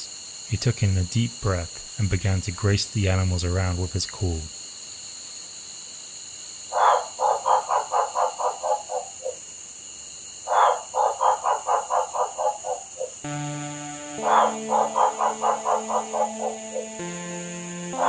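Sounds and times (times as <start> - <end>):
frog calling with clucking pulses: 6.7 - 9.4, 10.4 - 13.3, 14.2 - 17.1.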